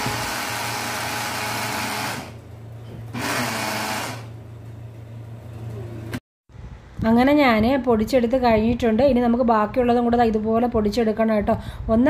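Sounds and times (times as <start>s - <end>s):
mixer grinder grinding: 0.0s - 4.4s.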